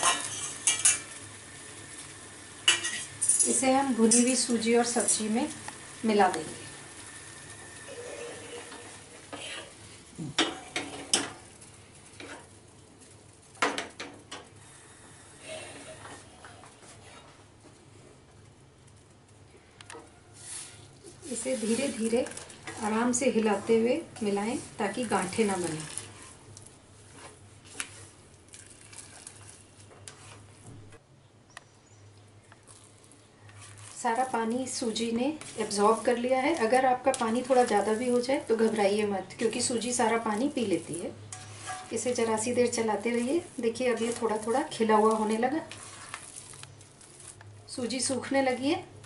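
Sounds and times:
water hissing into hot pan: 0:00.0 - 0:12.2
spatula stirring in a pan: 0:00.0 - 0:18.4, 0:19.0 - 0:30.7, 0:32.4 - 0:48.6
metal spatula clinking on pan: 0:02.7 - 0:04.3.

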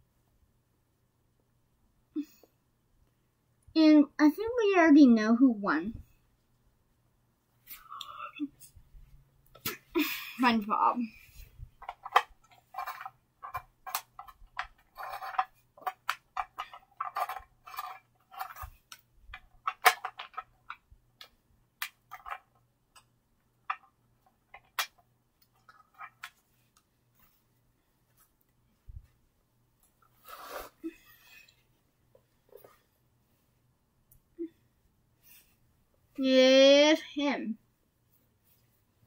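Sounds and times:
clicks and rustles of handling cards: 0:11.4 - 0:28.6.

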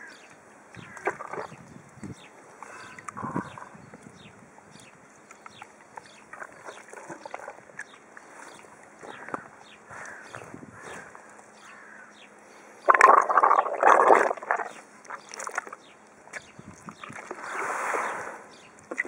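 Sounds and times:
wet clicks: 0:04.8 - 0:08.0
hippopotamus breath rush: 0:17.3 - 0:18.6.

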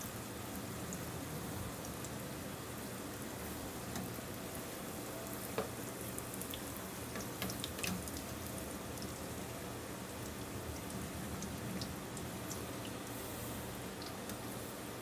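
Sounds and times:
deep-frying bubbling sizzle: 0:00.0 - 0:15.0
oil popping and crackling: 0:05.3 - 0:09.4.

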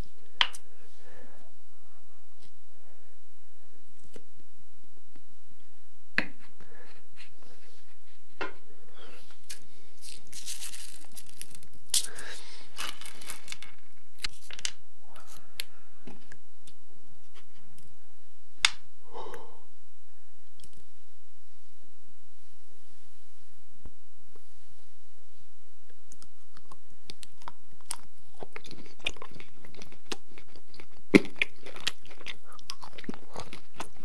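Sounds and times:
squeezed tube crinkling: 0:09.4 - 0:14.6.

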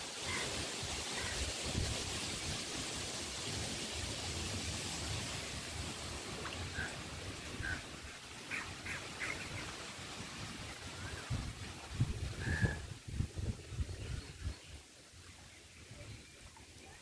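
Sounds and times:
wind buffeting microphone: 0:11.1 - 0:14.7.

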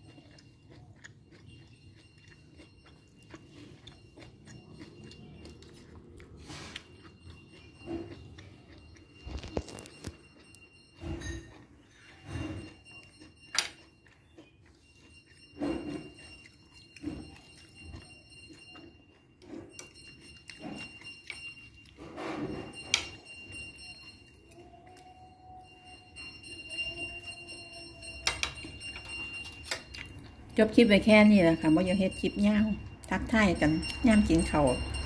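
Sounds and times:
spoon clinking against dish: 0:26.6 - 0:30.1.

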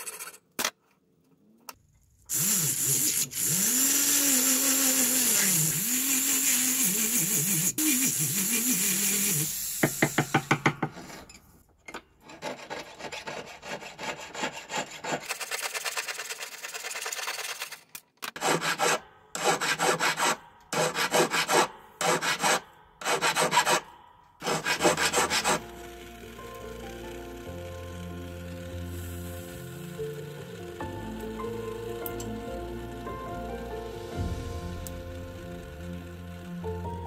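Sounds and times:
rotary tool sanding whine: 0:02.3 - 0:09.9, 0:24.4 - 0:33.0, 0:34.2 - 0:37.0
saw cutting metal tube: 0:02.3 - 0:11.2, 0:12.3 - 0:17.4, 0:18.4 - 0:33.2, 0:33.8 - 0:37.0
metal rubbing strokes: 0:18.4 - 0:26.0.

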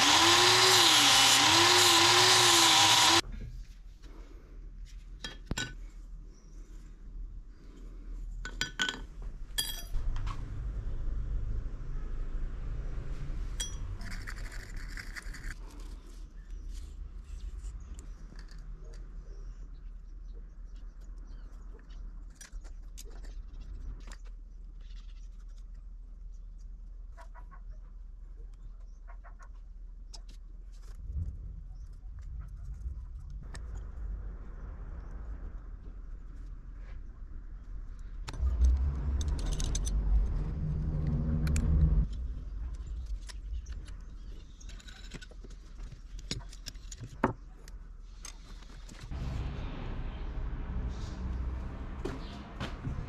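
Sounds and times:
metal clinks and taps: 0:08.4 - 0:10.0
low steady hum: 0:49.1 - 0:53.0.

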